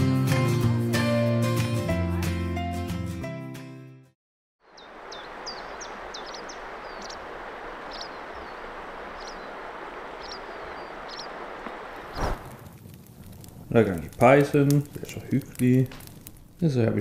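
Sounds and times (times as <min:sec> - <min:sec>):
small birds chirping: 0:04.6 - 0:12.4
river water rushing: 0:04.7 - 0:12.4.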